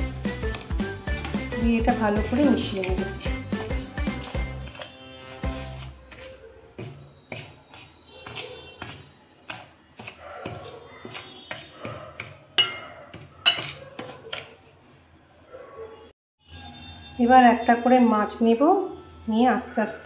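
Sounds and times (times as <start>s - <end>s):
metal spoon scraping steel bowl: 0.3s - 14.6s.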